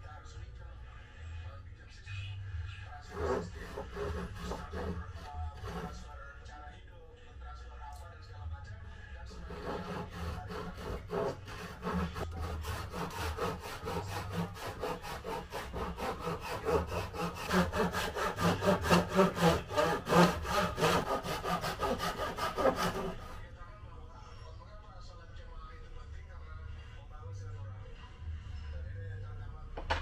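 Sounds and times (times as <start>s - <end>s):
hand saw cutting wood: 3.1s - 6.0s, 9.3s - 23.4s.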